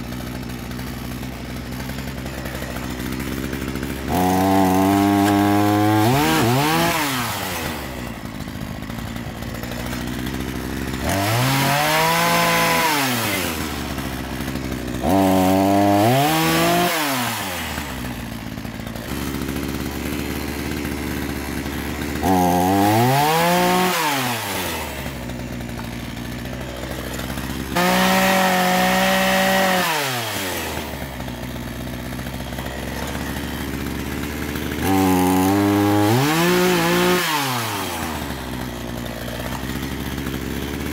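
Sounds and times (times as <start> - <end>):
chainsaw cutting through branch: 0.0 - 40.9.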